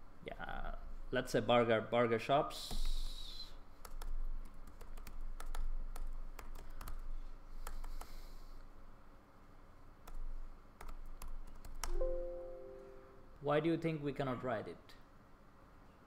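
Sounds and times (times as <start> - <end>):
computer keyboard typing: 3.8 - 8.2, 10.0 - 12.0.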